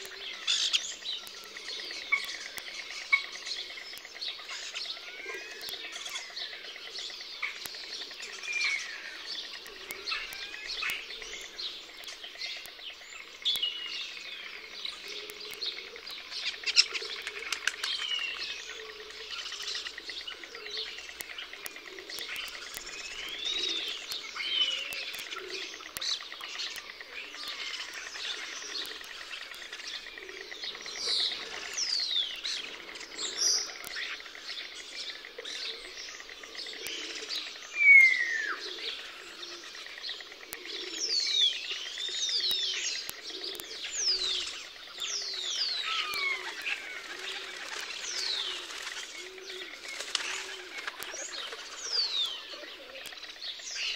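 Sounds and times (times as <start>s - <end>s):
birds chirping and whistling: 0.0s - 53.9s
sharp clicks: 42.2s - 52.3s.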